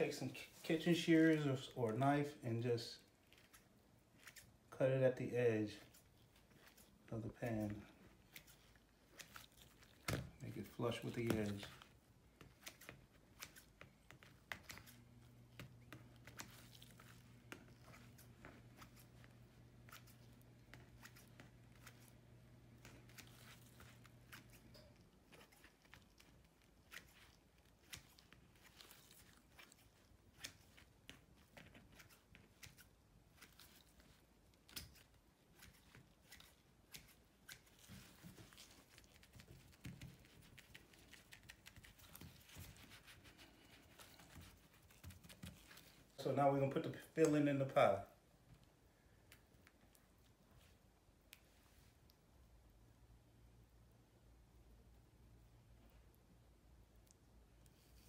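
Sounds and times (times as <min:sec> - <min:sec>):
shears snipping dough: 0:05.7 - 0:46.2.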